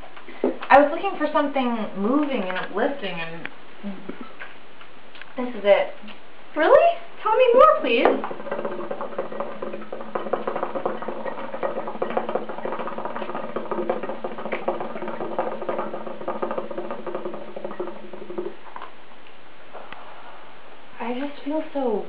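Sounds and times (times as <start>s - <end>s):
hookah water bubbling: 7.2s - 19.1s.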